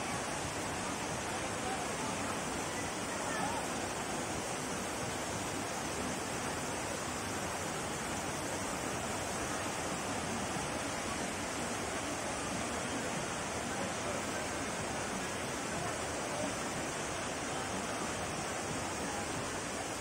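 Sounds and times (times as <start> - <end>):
river rushing over rocks: 0.0 - 20.0.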